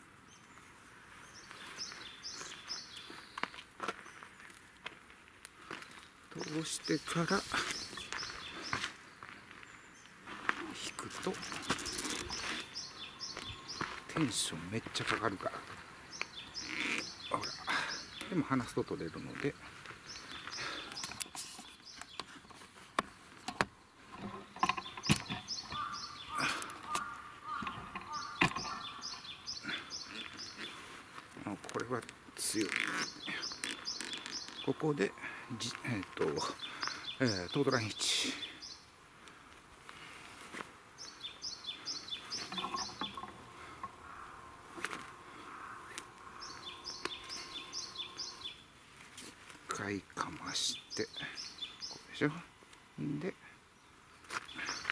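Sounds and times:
songbird chirping: 0.0 - 54.9
soft rustling: 39.2 - 41.2, 42.0 - 50.6.

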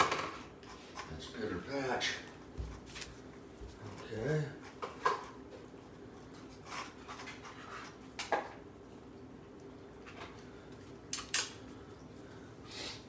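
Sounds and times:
cats eating from metal bowls: 0.6 - 12.6.

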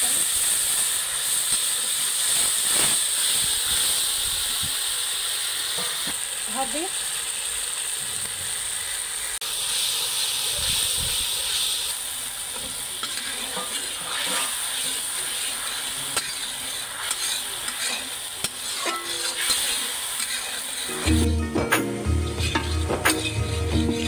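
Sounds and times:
spice paste sizzling in oil: 0.0 - 24.0
metal spatula scraping: 12.6 - 24.0.

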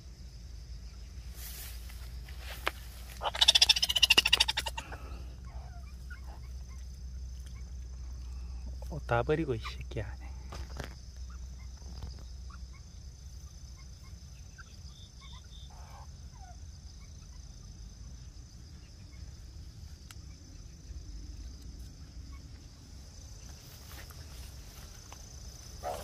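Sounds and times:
faint chirps: 0.0 - 26.0.

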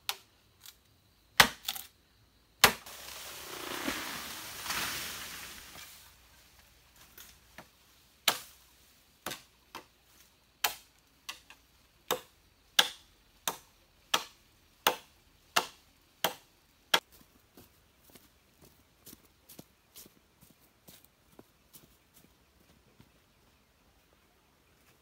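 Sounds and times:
bamboo being chopped: 1.4 - 1.9, 2.6 - 5.9, 7.1 - 9.9, 10.6 - 17.1.

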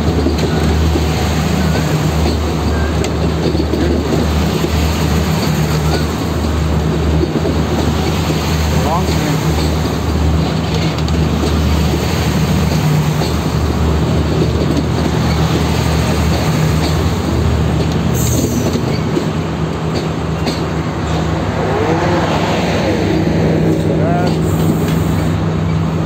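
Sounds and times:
train wheels clattering on rails: 0.0 - 21.6, 23.7 - 26.0
diesel engine drone: 19.4 - 26.0.

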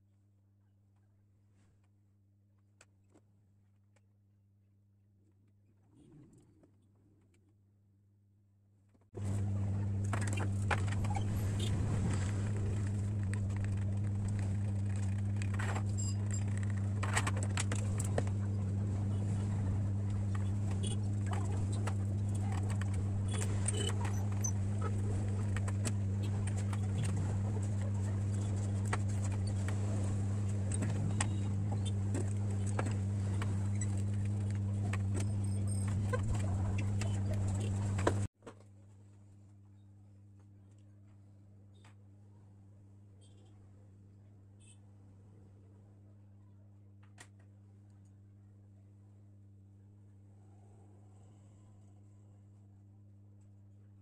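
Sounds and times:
electrical hum of appliance: 8.8 - 54.0.

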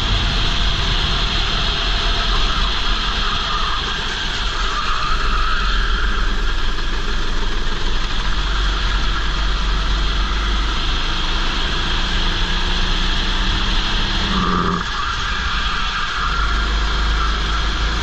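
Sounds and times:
wind rush on microphone: 0.0 - 4.5
go-kart engine running: 0.0 - 18.0.

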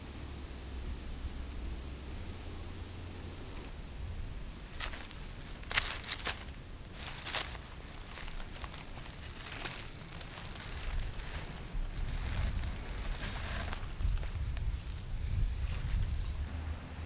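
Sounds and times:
dry leaves rustling and crackling: 3.3 - 16.5.

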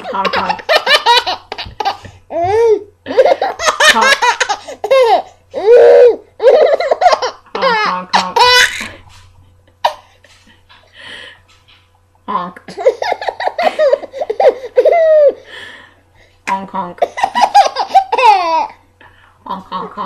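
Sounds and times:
baby laughing: 0.0 - 9.0, 12.7 - 15.4, 17.0 - 18.8.

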